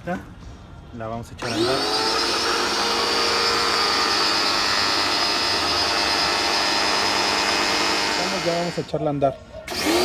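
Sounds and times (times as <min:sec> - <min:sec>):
pressure washer whining: 0:01.4 - 0:09.0, 0:09.7 - 0:10.0.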